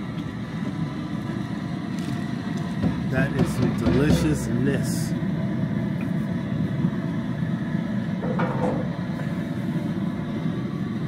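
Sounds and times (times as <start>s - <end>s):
propane burner rumbling: 0.0s - 11.0s.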